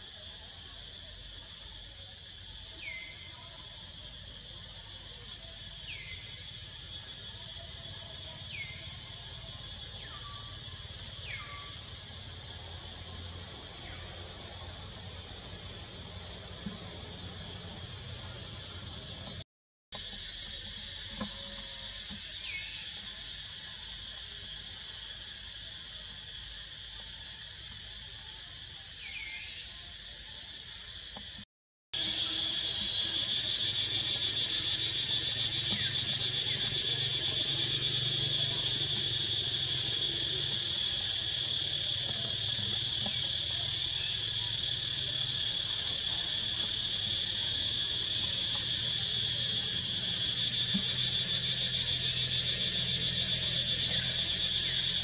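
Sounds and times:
insects buzzing and trilling: 0:00.0 - 0:31.4, 0:32.0 - 0:55.0.

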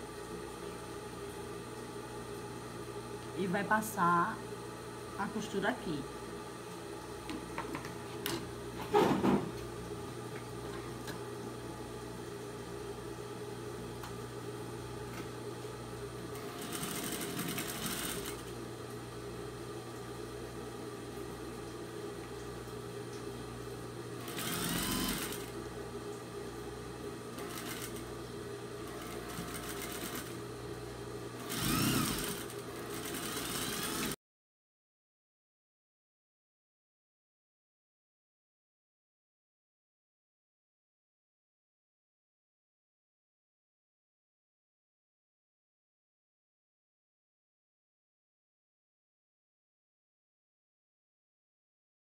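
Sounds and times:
sewing machine motor hum: 0:16.3 - 0:18.6, 0:24.2 - 0:25.6, 0:27.3 - 0:28.2, 0:28.8 - 0:30.5, 0:31.4 - 0:34.2
sewing machine stitching fabric: 0:16.4 - 0:18.5, 0:24.2 - 0:25.5, 0:27.4 - 0:28.0, 0:28.9 - 0:30.4, 0:31.4 - 0:34.2.

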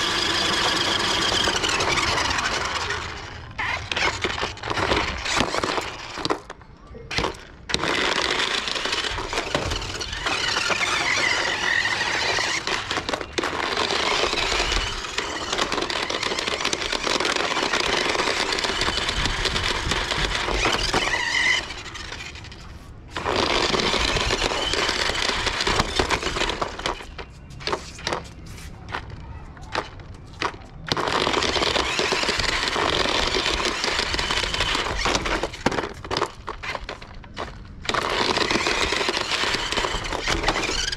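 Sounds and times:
electric motors whining: 0:00.0 - 0:06.4, 0:07.3 - 0:22.6
rubber tyres squealing on concrete: 0:00.0 - 0:40.9.

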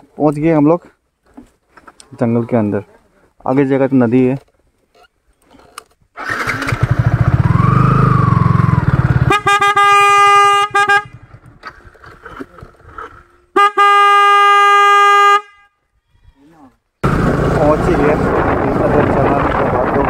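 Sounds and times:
motorcycle engine running: 0:06.6 - 0:12.2, 0:17.0 - 0:20.0
horn blasts: 0:09.2 - 0:11.3, 0:13.6 - 0:15.8.

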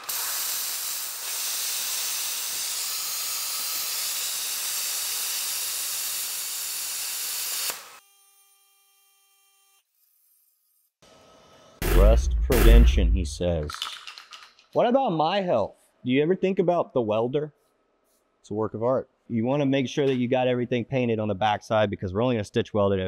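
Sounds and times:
plasma cutter hissing: 0:00.0 - 0:08.0.

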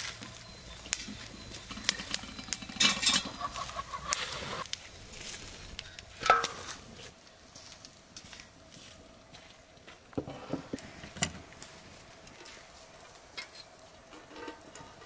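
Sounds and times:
chickens clucking: 0:00.3 - 0:04.7.

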